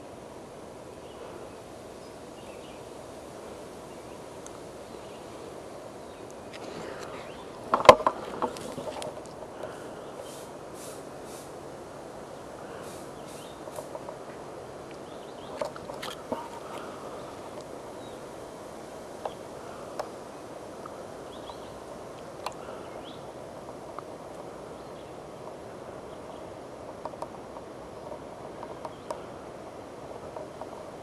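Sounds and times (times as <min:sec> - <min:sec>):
steady hiss: 0:00.0 - 0:31.0
small clicks and ticks: 0:26.8 - 0:29.3.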